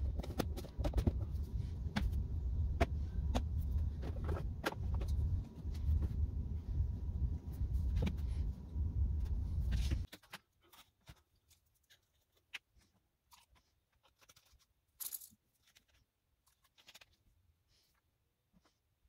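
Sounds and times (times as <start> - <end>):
loud low rumble: 1.2 - 10.0.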